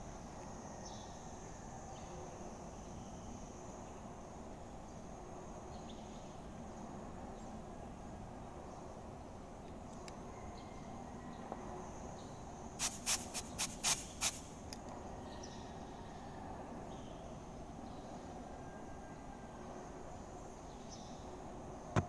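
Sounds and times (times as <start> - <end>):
cutting torch gas hiss bursts: 12.8 - 14.6.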